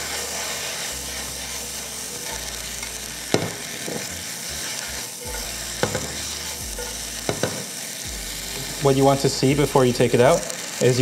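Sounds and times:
greens sizzling in a wok: 0.0s - 11.0s
sharp knocks on wok: 3.4s - 3.6s, 5.8s - 6.2s, 7.3s - 7.7s.

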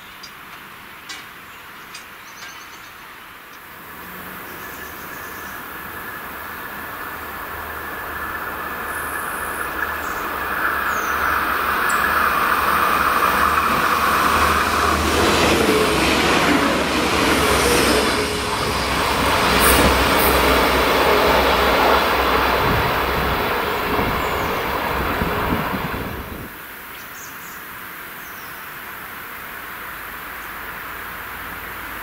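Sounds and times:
train passing at speed: 3.6s - 26.7s.

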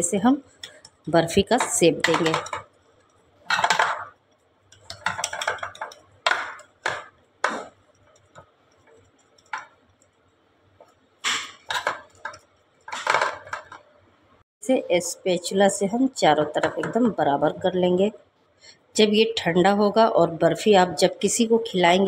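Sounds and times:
metal knocks against tin: 1.5s - 2.7s.

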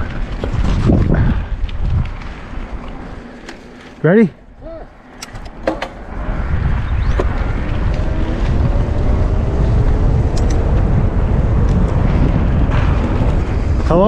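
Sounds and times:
wind buffeting microphone: 0.0s - 14.0s
tyres rolling over dirt: 5.6s - 14.0s.

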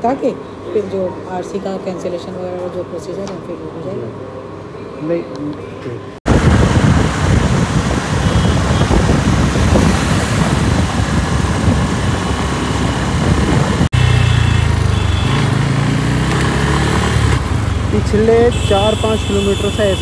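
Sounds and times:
low engine hum in traffic: 0.0s - 20.0s
wind rushing over microphone: 6.2s - 14.0s
motorbike engine: 6.4s - 20.0s.

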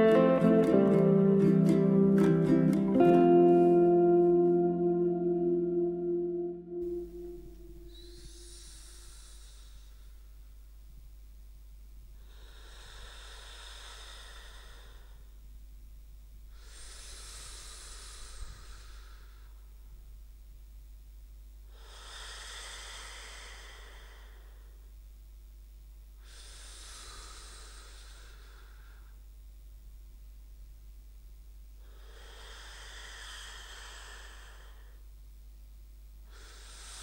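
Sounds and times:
faint low hum: 0.0s - 37.0s
slow airy sleep breathing: 6.8s - 10.5s, 12.2s - 15.4s, 16.5s - 20.1s, 21.6s - 25.0s, 26.2s - 29.4s, 31.7s - 35.2s, 36.2s - 37.0s.

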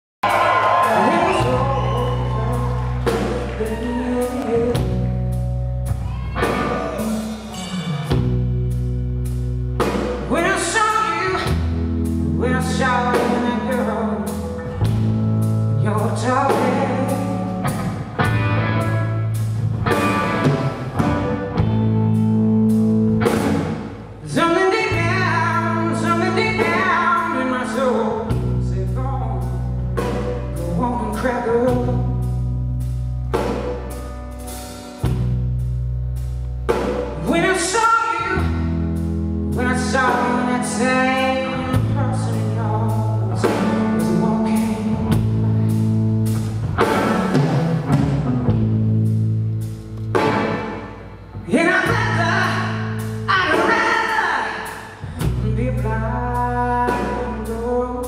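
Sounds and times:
band playing chords: 0.2s - 58.0s
woman singing: 0.8s - 5.2s, 10.3s - 11.7s, 12.3s - 14.4s, 15.8s - 17.5s, 24.2s - 29.7s, 30.6s - 32.3s, 37.2s - 38.6s, 39.5s - 45.4s, 51.5s - 58.0s.

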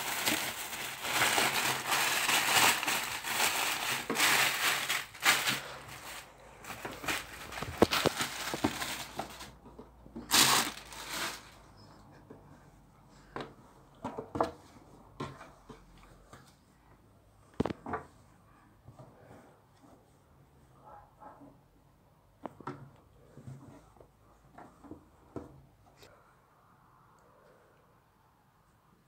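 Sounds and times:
plastic bag crinkling and rustling: 0.0s - 9.6s, 10.2s - 11.6s.

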